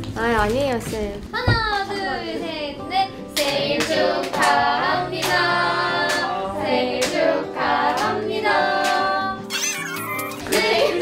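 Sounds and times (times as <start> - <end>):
voices singing together: 2.1 - 9.5, 10.1 - 11.0
hand claps: 3.4 - 4.6, 5.2 - 6.3, 7.0 - 7.2.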